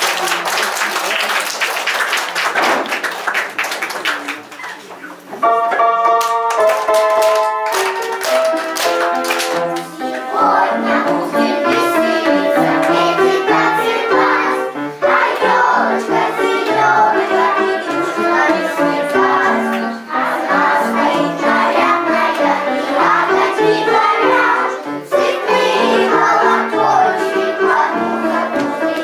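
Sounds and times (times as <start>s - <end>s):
children singing: 9.8s - 29.0s.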